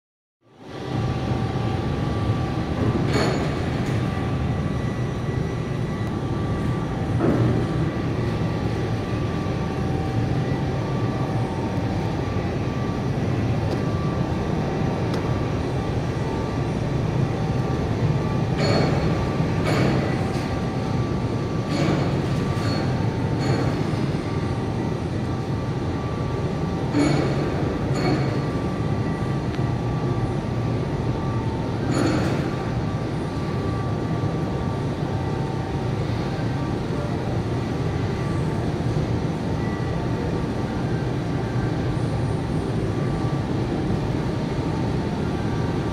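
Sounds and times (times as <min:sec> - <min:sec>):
faint motor whine: 0:00.5 - 0:45.9
overhead crane rumble: 0:00.6 - 0:45.9.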